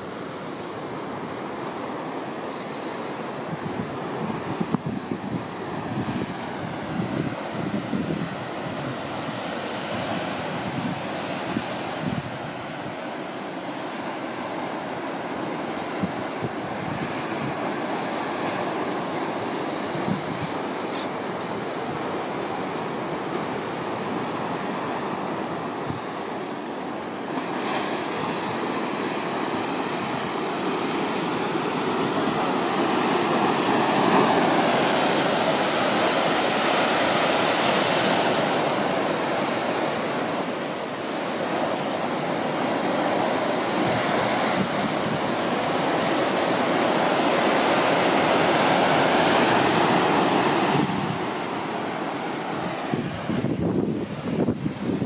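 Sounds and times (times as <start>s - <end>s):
surf breaking against cliffs: 0.0s - 55.0s.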